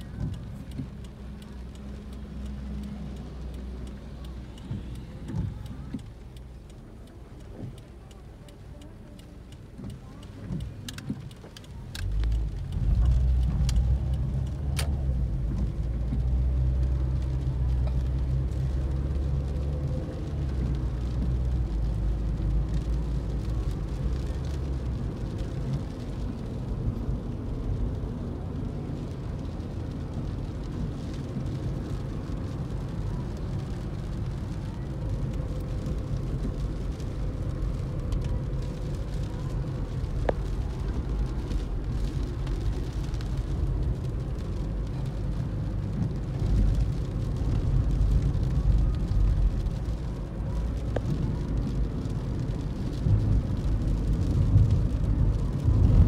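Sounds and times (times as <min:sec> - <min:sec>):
car engine and road noise: 0:00.0 - 0:56.0
sharp clicks: 0:00.2 - 0:18.8.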